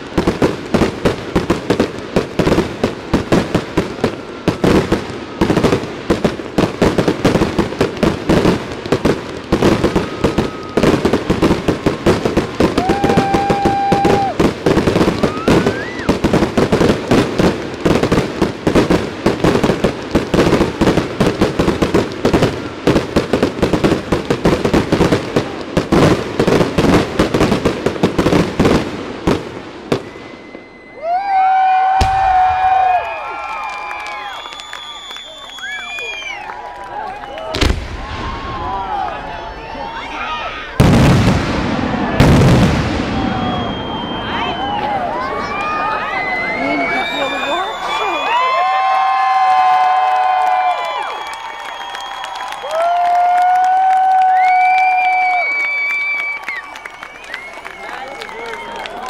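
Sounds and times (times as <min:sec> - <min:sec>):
fireworks bangs and crackles: 0:00.0 - 0:59.0
fireworks whistles: 0:00.2 - 0:36.6, 0:37.2 - 0:38.5, 0:39.4 - 0:53.5, 0:54.2 - 0:59.0.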